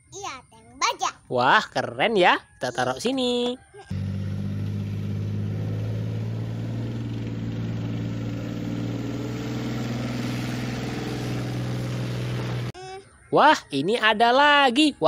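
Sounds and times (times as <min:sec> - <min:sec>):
tank diesel engine running: 0:03.9 - 0:12.7.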